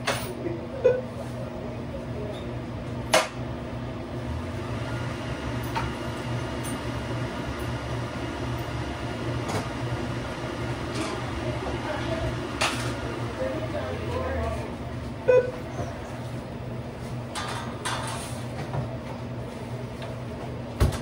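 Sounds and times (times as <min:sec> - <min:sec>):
kitchen equipment and ventilation hum: 0:00.0 - 0:21.0.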